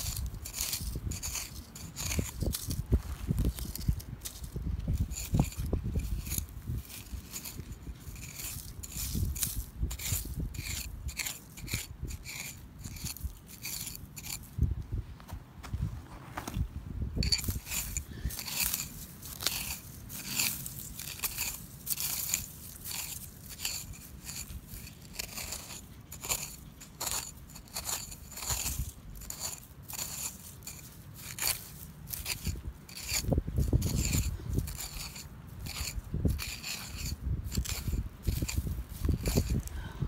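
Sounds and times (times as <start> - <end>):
screwdriver scraping gravelly soil: 0.0 - 14.7, 17.2 - 40.0.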